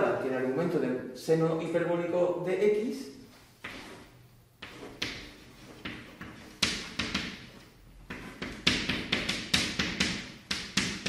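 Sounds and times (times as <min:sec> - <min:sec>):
chalk tapping and scratching: 0:03.6 - 0:11.0.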